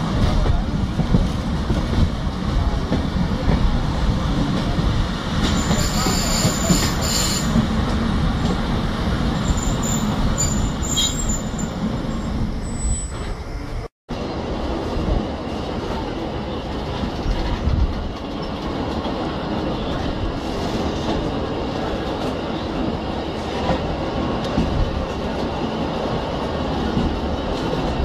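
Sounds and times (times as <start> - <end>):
train rumbling on track: 0.0 - 28.0
high wheel squeal: 5.6 - 7.6, 9.4 - 13.7.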